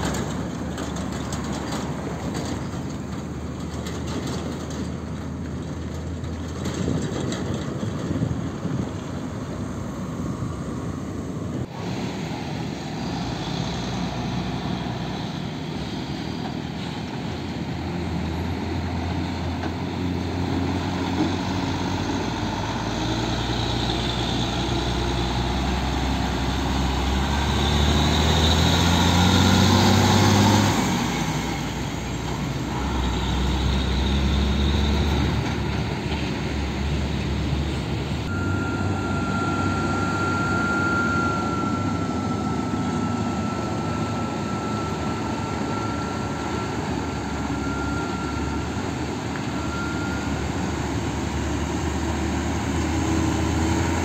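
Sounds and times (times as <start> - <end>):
diesel truck engines pulling away: 0.0 - 54.0
thin high whine: 38.3 - 48.9.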